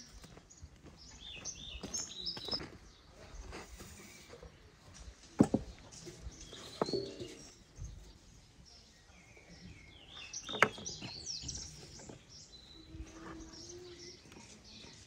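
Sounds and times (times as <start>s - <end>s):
songbirds chirping and whistling: 0.0s - 15.0s.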